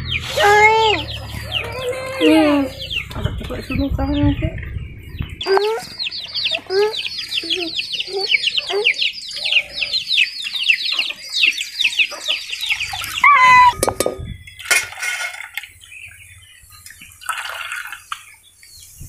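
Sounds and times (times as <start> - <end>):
chicks peeping: 0.0 - 14.4
splashing and handling noises: 12.8 - 15.9, 16.7 - 18.4
short loud pitched call: 13.2 - 13.9.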